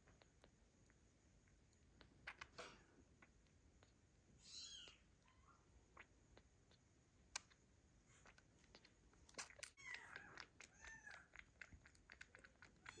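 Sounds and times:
kitten suckling clicks and smacks: 0:00.0 - 0:04.2, 0:05.8 - 0:13.0
kitten squeaks: 0:03.8 - 0:13.0.

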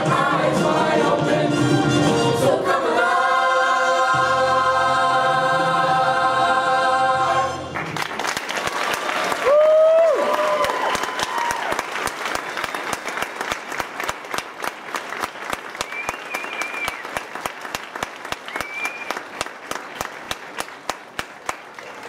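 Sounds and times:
audience applauding: 0:07.7 - 0:22.0
loud close claps: 0:07.8 - 0:22.0.

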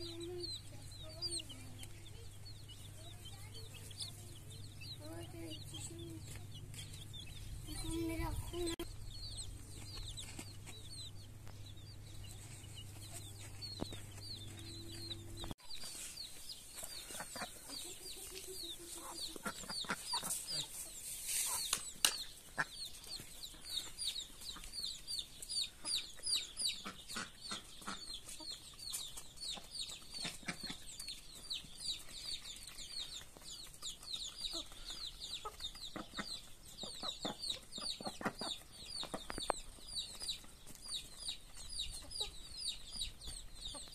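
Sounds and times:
adult chickens clucking: 0:00.0 - 0:43.9
baby chicks peeping: 0:00.0 - 0:43.9.

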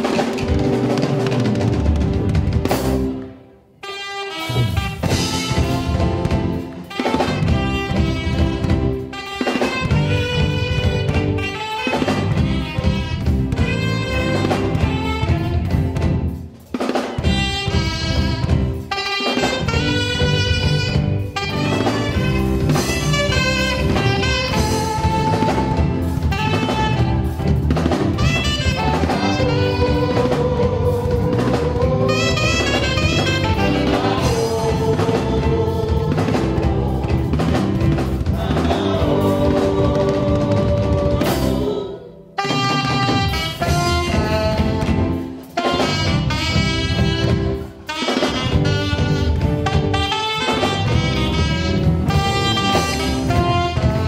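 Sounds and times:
drum kit: 0:00.0 - 0:54.0
electric guitar: 0:00.0 - 0:54.0
saxophone melody: 0:03.8 - 0:16.2, 0:17.2 - 0:54.0
keyboard: 0:19.6 - 0:42.2.

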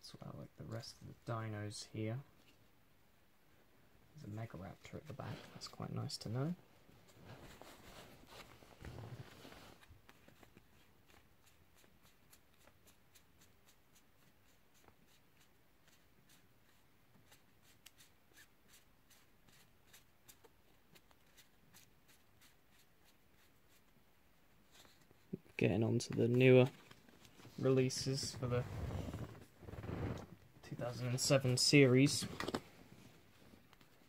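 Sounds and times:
rustle of handling cards: 0:04.2 - 0:29.8, 0:30.8 - 0:34.0.

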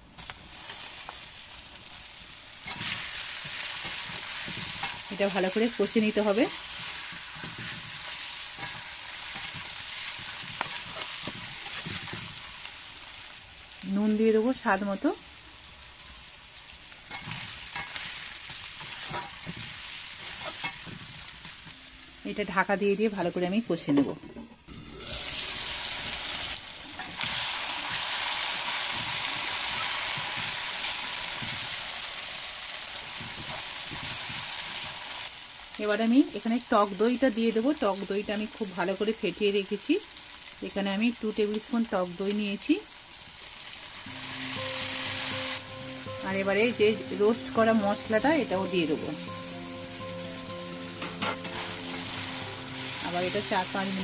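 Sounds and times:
meat sizzling in hot oil: 0:00.0 - 0:21.8, 0:24.7 - 0:54.0
spatula scraping and knocking pan: 0:02.7 - 0:05.1, 0:06.7 - 0:12.5, 0:17.1 - 0:21.7, 0:28.8 - 0:30.7, 0:33.1 - 0:35.0, 0:51.0 - 0:52.1.

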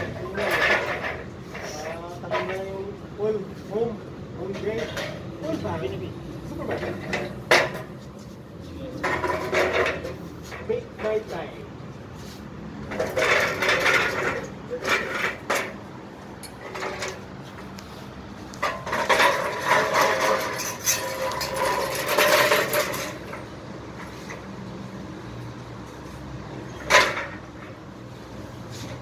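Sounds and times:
metal stepladder clattering: 0:09.0 - 0:11.3, 0:12.8 - 0:17.6, 0:18.5 - 0:24.4, 0:26.6 - 0:27.8.

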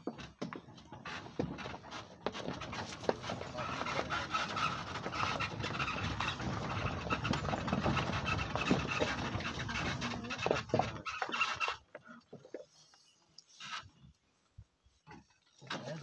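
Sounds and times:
knocks and rattles: 0:00.0 - 0:11.8.

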